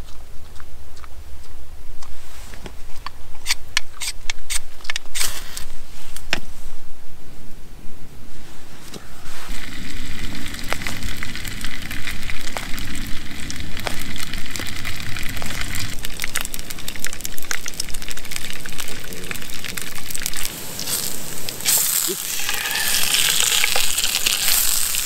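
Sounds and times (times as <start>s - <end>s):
crackling pops: 8.9s - 25.0s
sausages sizzling in a frying pan: 9.4s - 25.0s
gas burner hissing: 20.4s - 25.0s.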